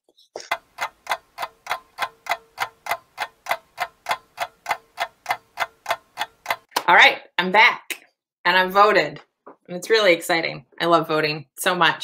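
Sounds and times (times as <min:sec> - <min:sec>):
clock ticking: 0:00.4 - 0:06.7.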